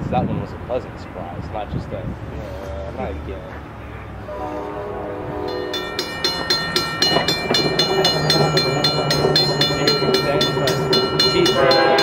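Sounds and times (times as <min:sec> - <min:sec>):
low locomotive rumble: 0:00.2 - 0:12.0
train horn: 0:04.2 - 0:06.1, 0:11.2 - 0:12.0
railroad crossing bell ringing: 0:04.2 - 0:12.0.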